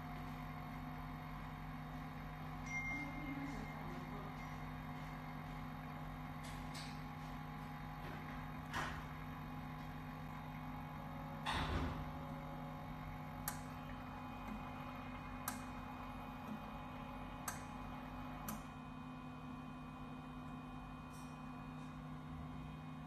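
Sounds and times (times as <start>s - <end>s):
printer machine hum: 0.0s - 2.6s, 3.2s - 23.0s.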